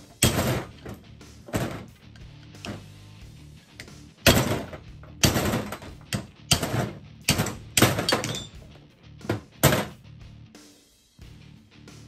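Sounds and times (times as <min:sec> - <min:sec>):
hammer striking metal: 0:00.2 - 0:00.8, 0:03.8 - 0:08.6.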